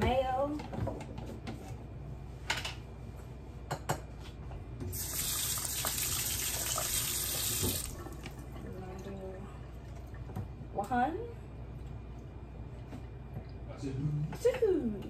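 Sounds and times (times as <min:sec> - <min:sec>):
kitchen tap running: 0:04.9 - 0:09.0.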